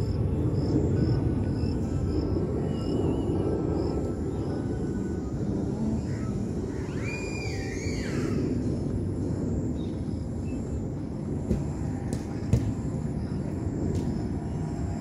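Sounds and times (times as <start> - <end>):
low outdoor rumble: 0.0 - 15.0
high whistled call: 6.8 - 8.4
sharp thuds of ball kicks: 11.5 - 12.9.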